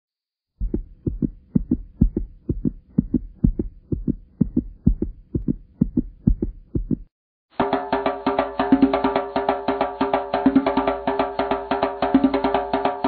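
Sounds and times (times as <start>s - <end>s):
heartbeat double thump: 0.6s - 7.1s.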